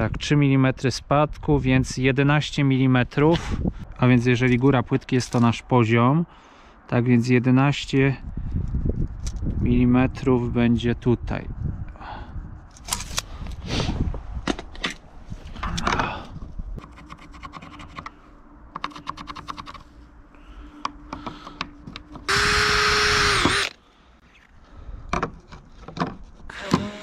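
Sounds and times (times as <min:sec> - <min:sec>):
cordless impact driver running: 0:22.3 - 0:23.8.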